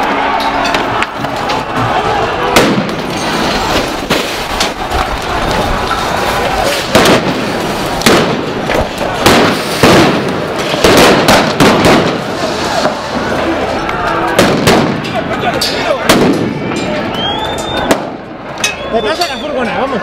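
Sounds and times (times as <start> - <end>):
people shouting: 0.0 - 3.0
loud sharp bangs: 0.0 - 5.9, 6.6 - 13.4, 14.2 - 18.4.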